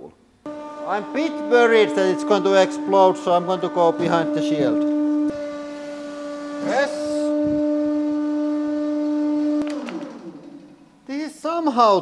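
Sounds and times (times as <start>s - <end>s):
hydraulic pump humming: 0.5s - 11.1s.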